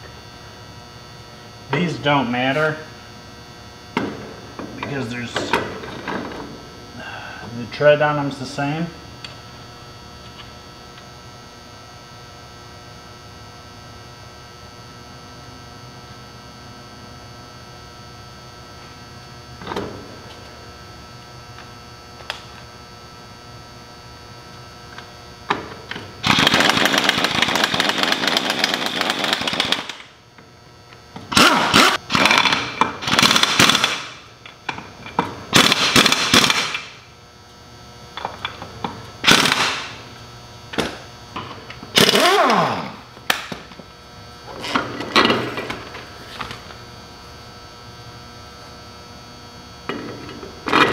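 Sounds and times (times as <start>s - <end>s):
impact wrench running: 25.5s - 30.2s, 31.2s - 37.0s, 38.2s - 40.1s, 40.7s - 43.7s.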